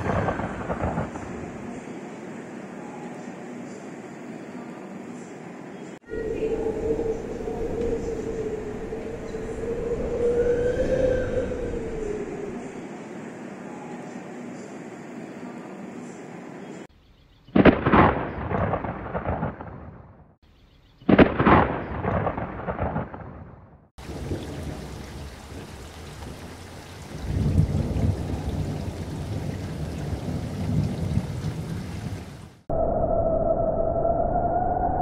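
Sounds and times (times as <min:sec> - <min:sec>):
thunder crashes: 0:00.0 - 0:01.7, 0:17.6 - 0:20.2, 0:21.1 - 0:24.9, 0:27.2 - 0:32.2.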